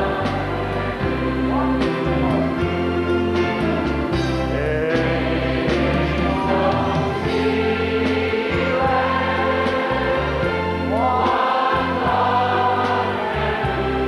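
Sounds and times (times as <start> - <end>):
choir singing: 0.0 - 14.0
instrumental accompaniment: 0.0 - 14.0
sustained bass notes: 0.0 - 14.0.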